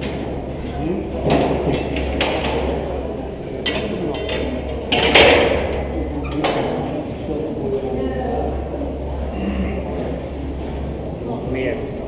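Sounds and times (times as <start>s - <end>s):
steady low hum: 0.0s - 12.0s
lift gates clanking and rattling: 3.6s - 6.9s.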